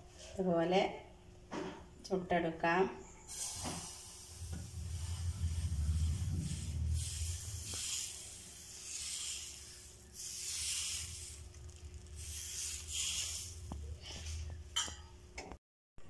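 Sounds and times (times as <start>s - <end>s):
low steady hum: 0.0s - 15.6s
ladle swishing batter: 3.3s - 14.6s.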